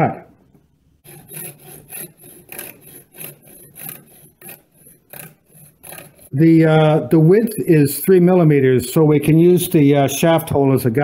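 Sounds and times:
hacksaw rasping: 1.0 - 6.5.

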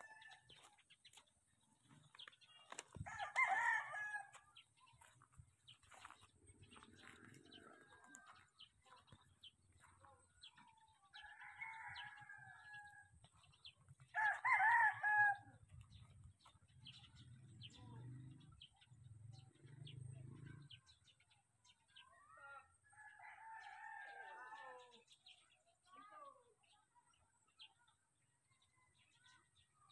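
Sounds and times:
roosters crowing: 3.0 - 4.4, 11.2 - 13.1, 14.1 - 15.5, 23.0 - 25.0.

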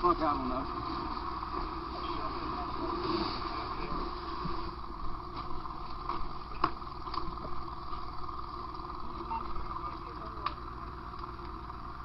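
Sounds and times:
fire rushing with low rumble: 0.0 - 12.0
fire cracks: 0.7 - 12.0.

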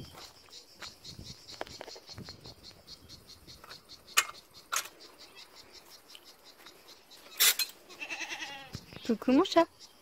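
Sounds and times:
insects chirping: 0.0 - 10.0.

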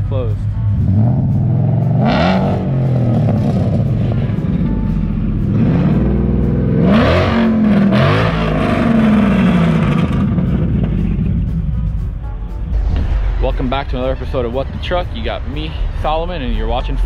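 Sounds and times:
engine idling and revving: 0.0 - 17.0.

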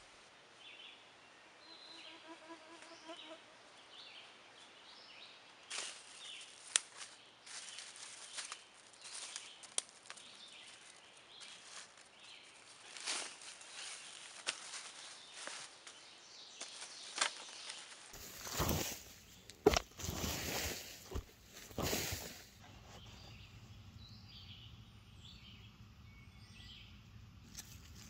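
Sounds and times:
faint chirping calls: 4.1 - 28.0
dry leaves rustling: 5.6 - 23.4
twigs snapping: 5.7 - 16.0, 16.6 - 22.5.

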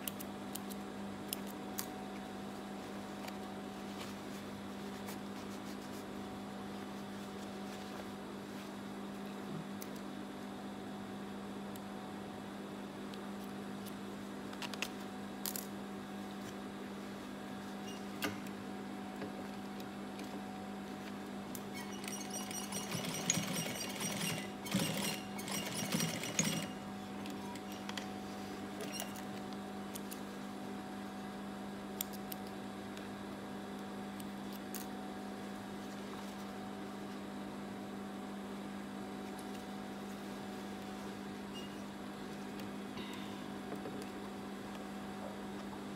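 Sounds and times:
steady hum: 0.0 - 45.9
sewing machine stitching: 21.8 - 26.8.

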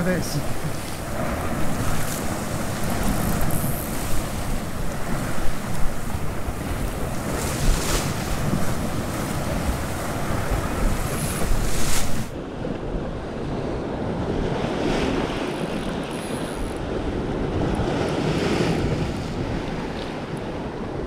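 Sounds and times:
sea swell washing against rocks: 0.0 - 12.4
wind buffeting microphone: 0.0 - 21.0.

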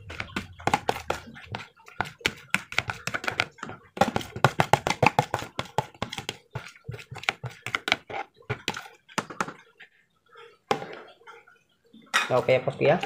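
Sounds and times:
metal spoon scraping plastic bowl: 0.0 - 8.9.

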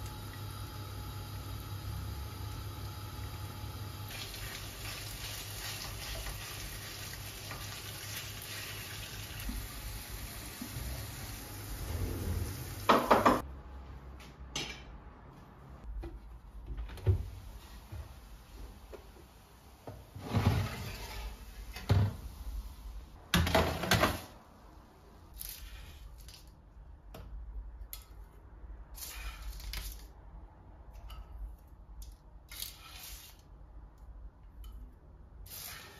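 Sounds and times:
metal baking tray sliding: 11.8 - 12.9, 20.1 - 22.0
frying pan clattering on hob: 12.9 - 13.4.

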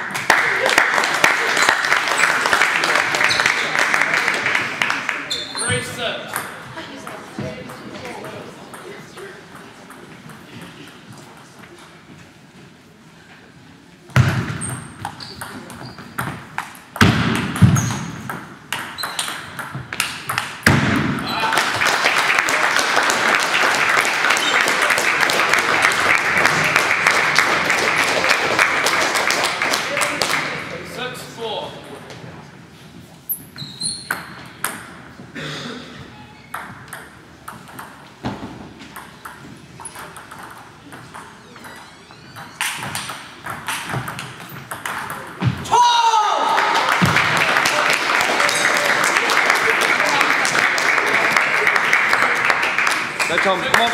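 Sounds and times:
short high squeaks: 5.3 - 5.9, 33.3 - 34.3, 36.1 - 36.6, 41.4 - 43.0
table tennis ball hitting bats and table: 5.3 - 11.4, 14.1 - 21.5, 33.6 - 35.2, 36.5 - 45.7.

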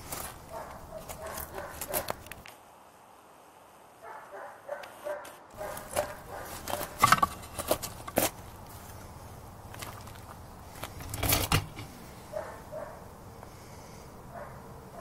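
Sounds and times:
metal clunks and scrapes: 6.6 - 8.4, 11.0 - 12.0.

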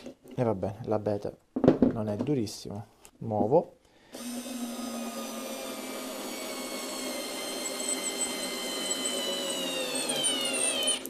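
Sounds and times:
cordless screwdriver motor whining: 4.2 - 11.0.

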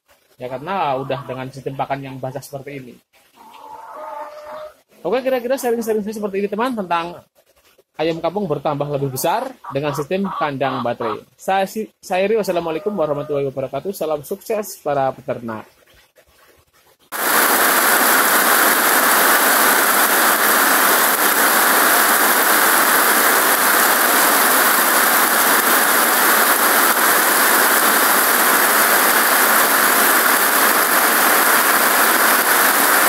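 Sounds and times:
heavy rain on pond: 16.4 - 33.0.

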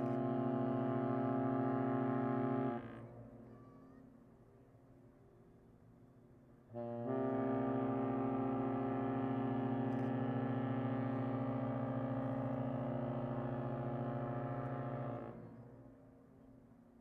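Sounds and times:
ship horn blast: 0.2 - 3.1, 6.7 - 15.6.

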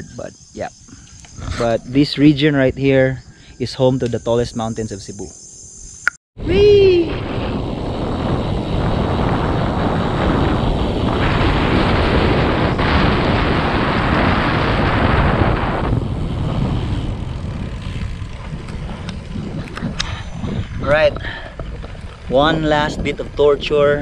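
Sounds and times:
wind buffeting microphone: 0.0 - 5.0, 6.4 - 24.0
tyre rumble: 7.3 - 23.2.

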